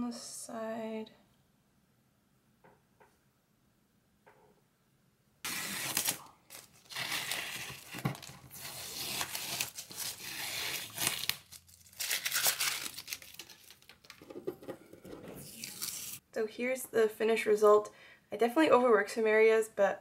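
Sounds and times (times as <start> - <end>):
tape peeling off paper: 5.5 - 14.2, 15.4 - 16.2.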